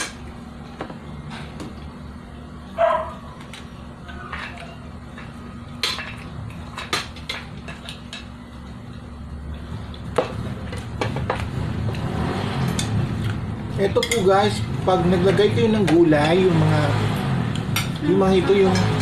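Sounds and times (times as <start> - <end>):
steady low hum: 0.0 - 19.0
plates and spoons clinking: 13.8 - 14.4, 17.7 - 19.0.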